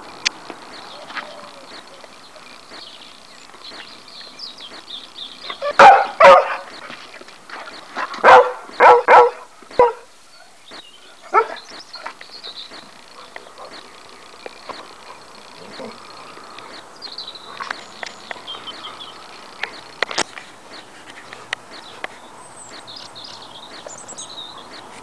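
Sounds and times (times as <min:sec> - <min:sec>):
dog barking: 0:05.6 - 0:06.8, 0:08.2 - 0:10.1, 0:11.3 - 0:11.6.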